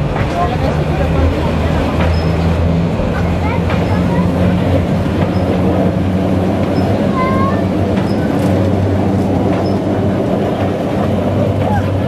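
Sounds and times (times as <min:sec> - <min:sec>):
electric locomotive hum: 0:00.0 - 0:12.0
wheels rumbling on track: 0:00.0 - 0:12.0.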